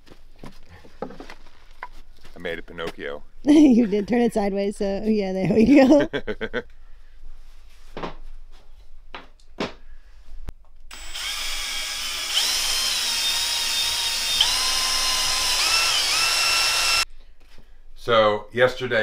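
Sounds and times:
cordless drill boring into wood: 10.9 - 17.0.

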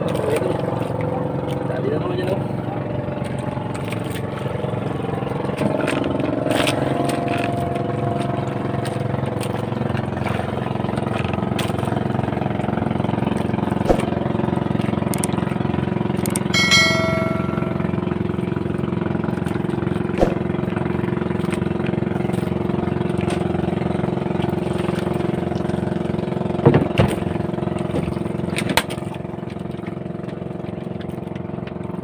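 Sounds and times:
boat engine running: 0.0 - 32.0
electronic chime: 16.5 - 18.4.

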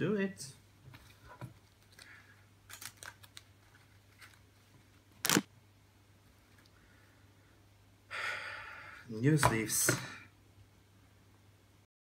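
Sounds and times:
plastic card sleeves rustling: 1.0 - 5.5.

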